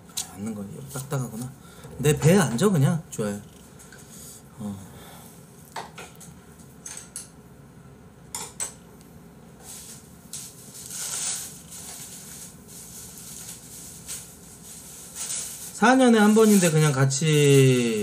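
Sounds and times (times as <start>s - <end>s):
soft rustling hiss: 9.0s - 18.0s.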